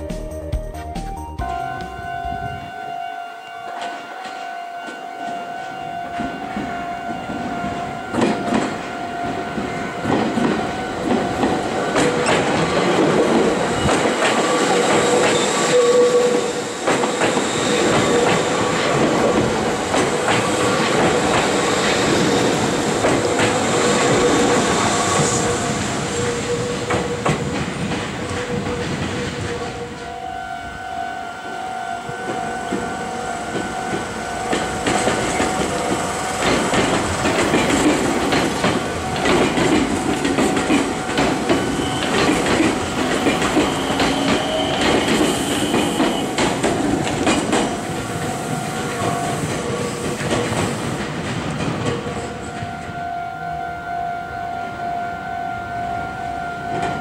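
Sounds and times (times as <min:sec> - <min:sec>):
train wheels clattering over rail joints: 0:10.0 - 0:29.8, 0:32.3 - 0:52.3.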